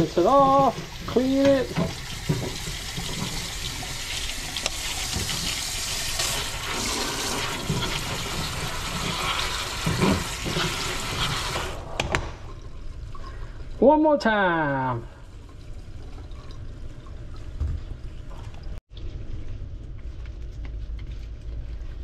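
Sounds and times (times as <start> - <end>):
faucet water running into sink: 0.0 - 11.8.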